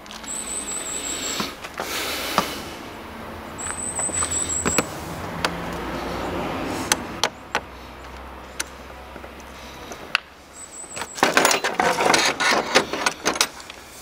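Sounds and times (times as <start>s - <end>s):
thin high whine: 0.0s - 2.8s.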